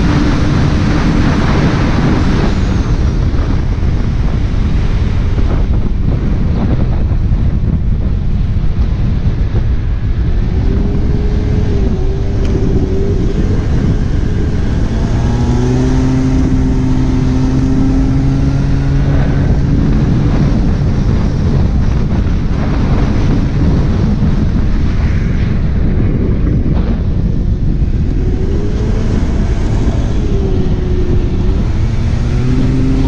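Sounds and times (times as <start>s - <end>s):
wind rushing over microphone: 0.0s - 33.0s
engine tone: 8.7s - 23.4s, 25.0s - 33.0s.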